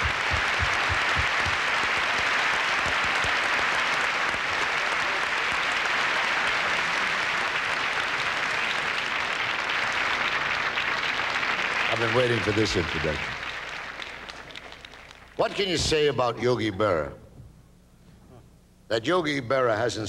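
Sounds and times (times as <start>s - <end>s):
low thuds: 0.0s - 1.6s
audience applauding: 0.0s - 15.7s.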